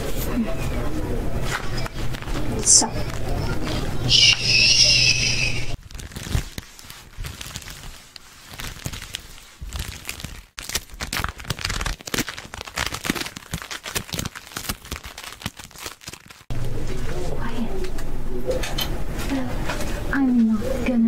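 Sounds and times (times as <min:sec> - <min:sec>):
crinkly material rustling: 0:00.0 - 0:04.1, 0:05.7 - 0:16.5.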